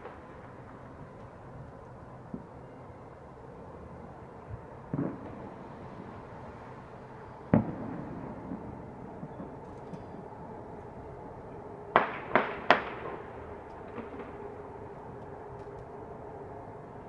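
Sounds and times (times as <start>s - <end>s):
steady city hum: 0.0s - 17.0s
distant gunshots: 12.0s - 13.3s.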